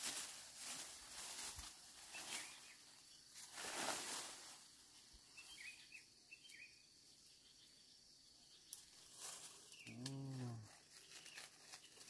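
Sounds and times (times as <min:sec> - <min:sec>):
high insect drone: 0:00.1 - 0:11.8
bird chirps: 0:02.1 - 0:03.2, 0:05.2 - 0:10.0.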